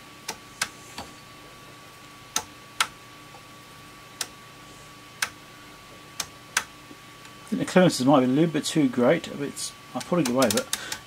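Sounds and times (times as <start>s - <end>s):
rotary switch clicking: 2.3s - 3.0s, 4.2s - 4.4s, 6.2s - 6.7s, 10.0s - 11.0s.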